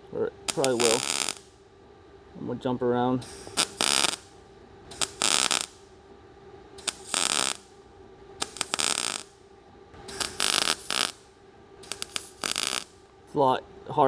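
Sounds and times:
welding arc crackling: 0.5 - 1.5, 3.5 - 5.9, 6.8 - 7.7, 8.4 - 9.4, 10.1 - 13.0
welding sputter: 0.5 - 1.5, 3.6 - 4.2, 4.9 - 5.8, 6.8 - 7.6, 8.4 - 9.4, 10.1 - 11.2, 11.8 - 13.0.

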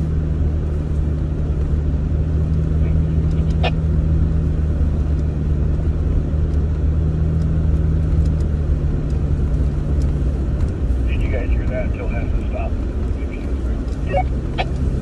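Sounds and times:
tyre and road noise: 0.0 - 15.0
vehicle engine hum: 0.0 - 15.0
light ticks: 2.4 - 3.9, 5.0 - 14.9.

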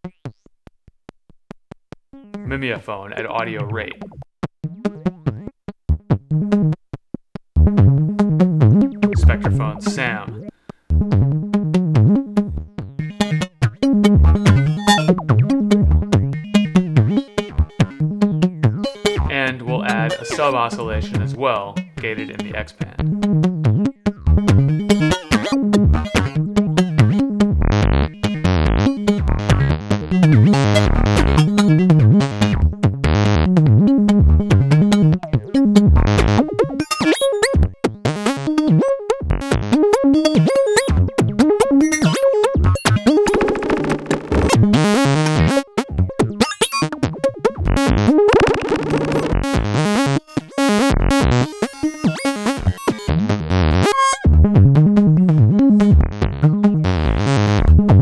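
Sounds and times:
gated sawtooth synth notes: 14.4 - 15.2
synth sub bass: 23.0 - 36.4, 47.6 - 50.0, 50.9 - 51.4, 52.6 - 58.0.

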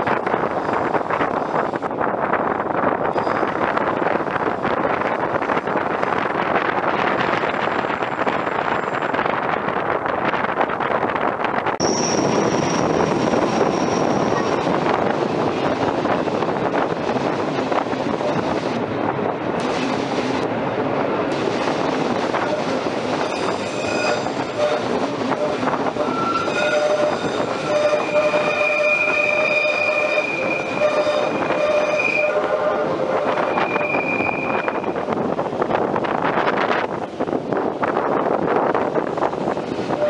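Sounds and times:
train wheels on track: 0.0 - 40.0
wheel flange squeal: 11.8 - 14.6, 22.4 - 34.9.

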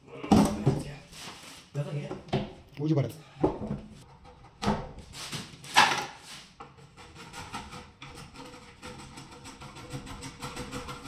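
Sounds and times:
cutter scraping laminate: 6.9 - 11.0.

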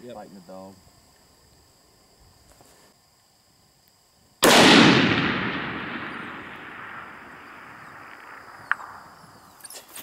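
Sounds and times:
rifle shot with long echo: 4.4 - 9.6.

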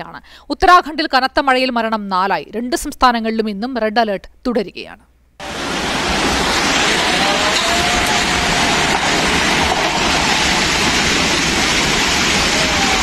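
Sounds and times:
flood water roaring: 5.4 - 13.0.

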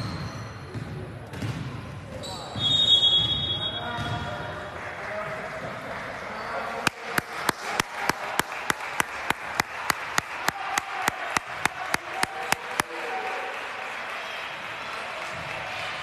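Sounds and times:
murmur of gym: 0.0 - 16.0
rhythmic hand clapping: 6.8 - 16.0.

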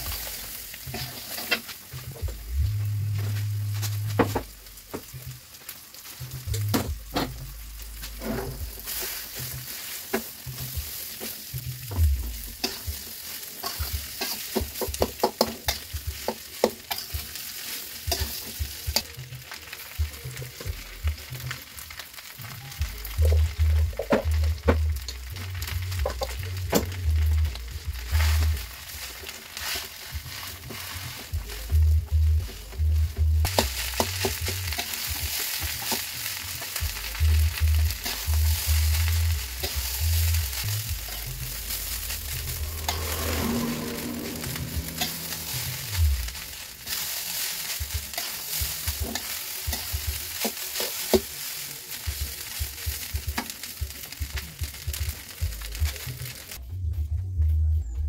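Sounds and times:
metal spatula scraping a wok: 0.0 - 2.4, 7.1 - 19.7, 28.0 - 31.6, 37.9 - 51.6
rice sizzling in a wok: 0.0 - 56.6
dull low bumps: 39.2 - 46.4.

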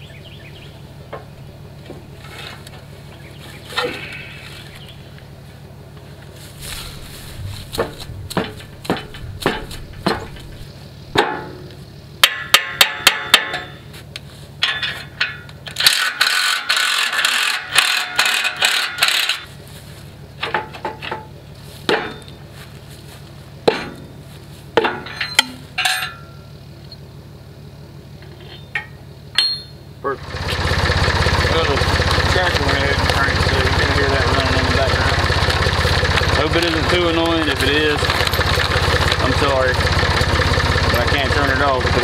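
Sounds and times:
sharp metal strikes: 7.7 - 13.9, 23.6 - 24.2, 28.6 - 29.8
rasping metal scrape: 15.8 - 19.5.

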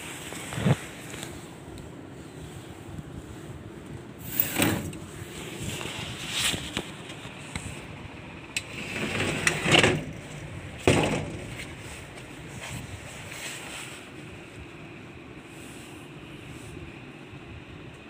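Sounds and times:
wooden doors scraping and knocking: 4.3 - 5.1, 8.6 - 11.9.

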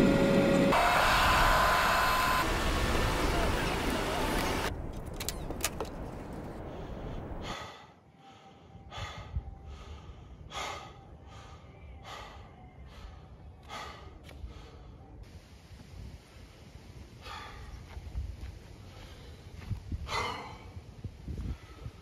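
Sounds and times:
man breathing hard: 6.6 - 15.2, 17.2 - 18.1, 18.7 - 22.0.

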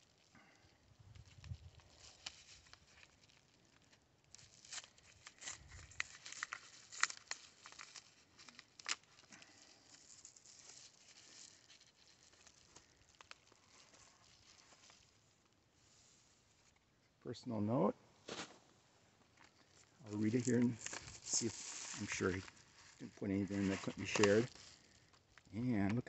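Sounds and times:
paper mailer tearing and crinkling: 1.2 - 3.5, 4.3 - 15.2, 20.1 - 25.0.

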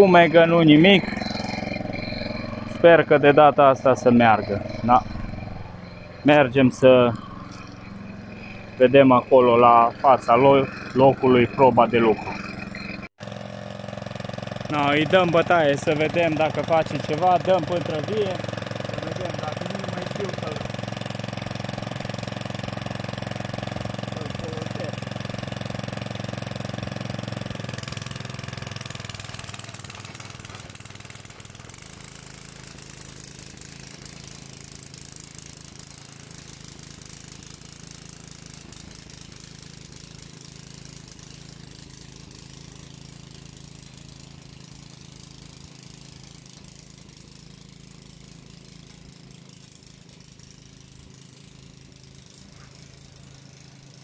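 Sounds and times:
motor hoe engine running: 0.0 - 54.0.

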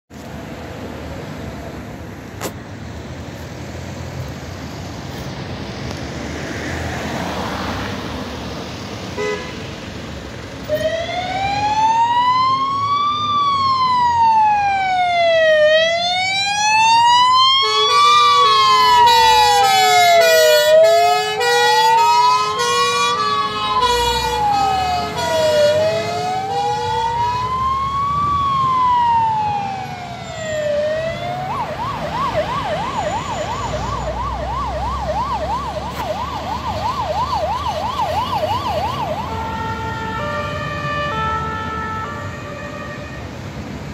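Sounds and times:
road noise: 0.1 - 43.9
siren wailing: 10.6 - 43.2
two-tone horns: 39.4 - 43.3.

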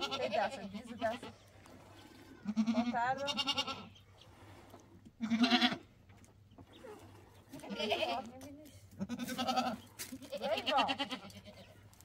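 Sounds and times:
goat bleating: 0.0 - 1.4, 2.4 - 4.0, 5.2 - 5.9, 7.5 - 8.4, 9.0 - 11.7.

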